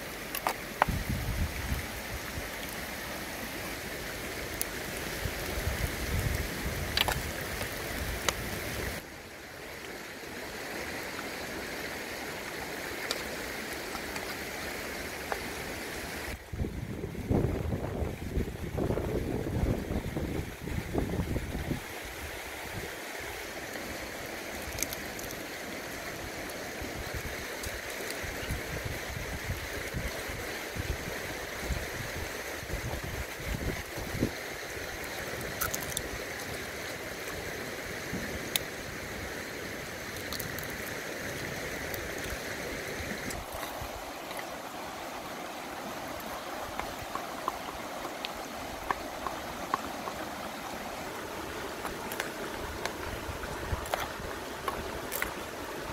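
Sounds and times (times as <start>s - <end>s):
river running over stones: 0.0s - 55.9s
small clicks: 35.4s - 36.1s.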